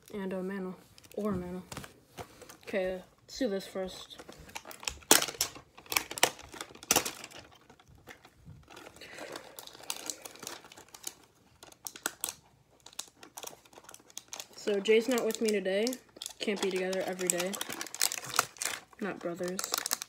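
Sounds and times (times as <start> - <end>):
plastic wrap crinkling and tearing: 4.0 - 20.0.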